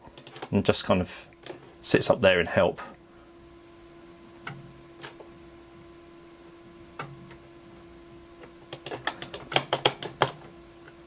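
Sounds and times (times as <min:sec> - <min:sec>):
faint steady hum: 0:00.0 - 0:11.0
clicks: 0:08.4 - 0:11.0.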